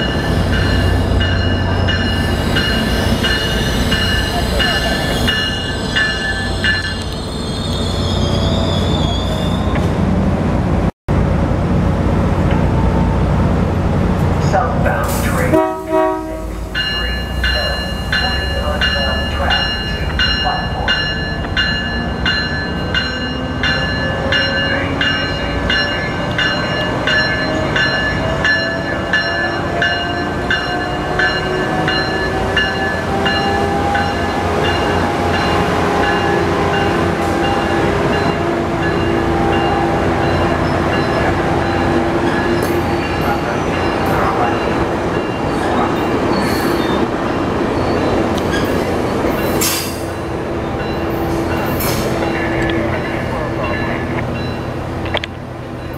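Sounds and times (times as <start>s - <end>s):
train bell ringing: 0.0s - 7.4s, 15.5s - 47.0s, 47.8s - 55.9s
locomotive whine: 0.0s - 55.9s
high wheel squeals: 1.8s - 9.9s, 47.7s - 50.2s.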